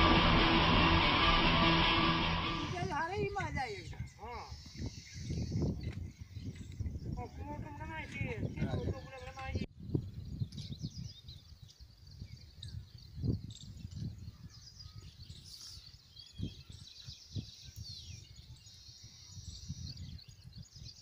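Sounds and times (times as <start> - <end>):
low rumble: 0.0 - 3.1
birds chirping: 0.0 - 21.0.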